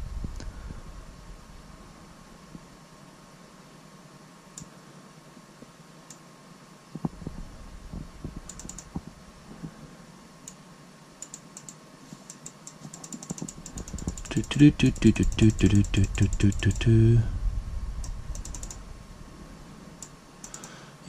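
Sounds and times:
laptop keyboard typing: 0:08.4 - 0:08.9, 0:11.2 - 0:17.2, 0:18.4 - 0:18.8, 0:20.0 - 0:20.8.

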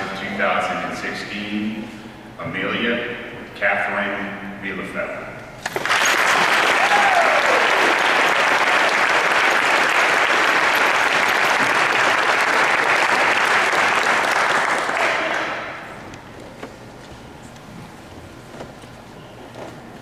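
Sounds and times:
audience applauding: 0:05.7 - 0:15.9.

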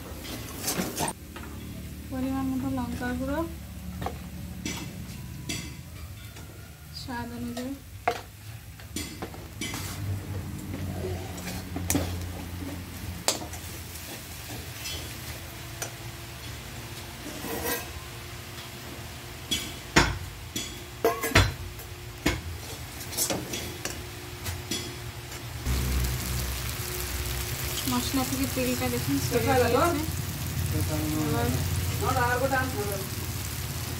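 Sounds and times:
low sizzle of frying: 0:00.0 - 0:33.9
metal spatula scraping a pan: 0:00.2 - 0:01.2, 0:09.0 - 0:10.2, 0:10.8 - 0:12.2, 0:13.3 - 0:15.3, 0:17.2 - 0:18.1.

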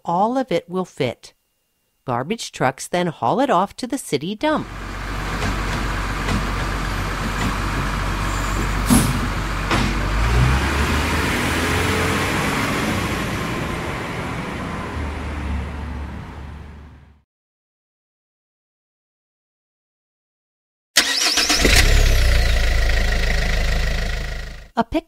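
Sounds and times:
truck engine rumbling: 0:04.6 - 0:17.2, 0:21.0 - 0:24.7.

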